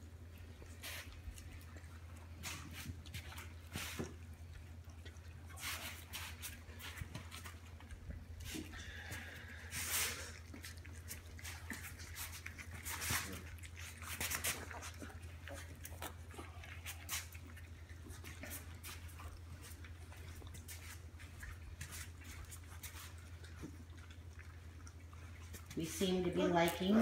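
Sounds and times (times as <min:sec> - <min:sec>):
puppies lapping wet food: 0:00.0 - 0:27.0.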